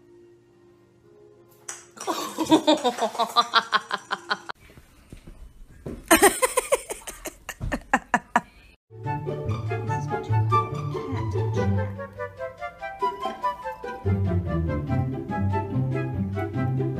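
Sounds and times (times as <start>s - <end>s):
baby giggling: 6.1s - 8.6s.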